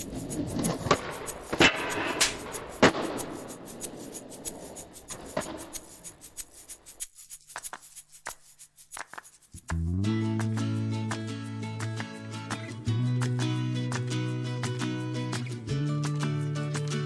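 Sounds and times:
skateboard wheels rumbling: 0:00.0 - 0:06.0
skateboard slamming on concrete: 0:00.7 - 0:03.2.

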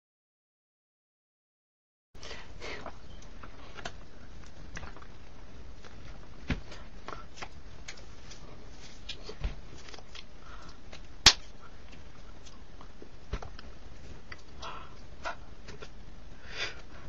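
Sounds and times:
loud sharp snap: 0:11.2 - 0:11.5.

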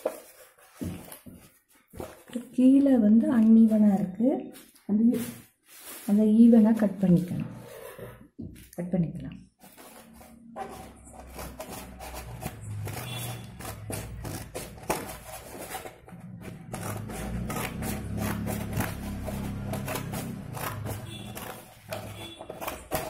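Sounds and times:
paper rustling and crinkling: 0:00.0 - 0:02.5, 0:04.6 - 0:07.2.

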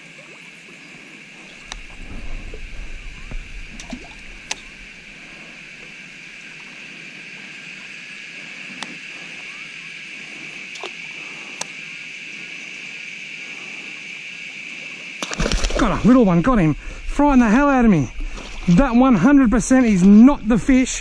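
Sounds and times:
insect chorus: 0:00.0 - 0:21.0
handling noise rumble: 0:01.5 - 0:06.6, 0:15.4 - 0:21.0.

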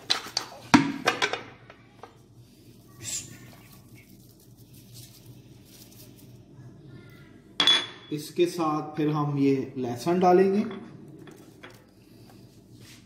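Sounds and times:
low steady hum: 0:00.0 - 0:13.0
chilli flakes pattering: 0:02.5 - 0:06.5.

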